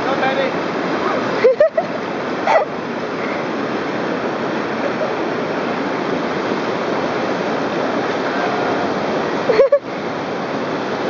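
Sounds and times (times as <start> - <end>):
river rapids rushing: 0.0 - 11.0.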